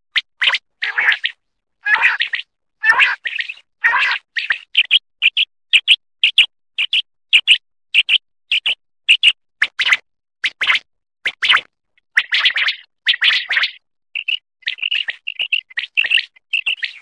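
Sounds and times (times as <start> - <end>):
quail calling: 0.8 - 4.6.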